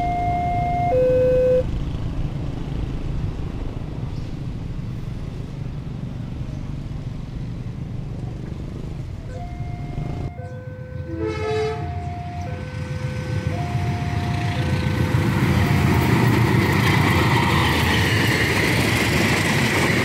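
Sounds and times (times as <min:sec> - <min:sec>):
two-tone electronic warning tone: 0:00.0 - 0:01.7, 0:09.2 - 0:16.1
motorcycle engines rumbling: 0:00.0 - 0:20.0.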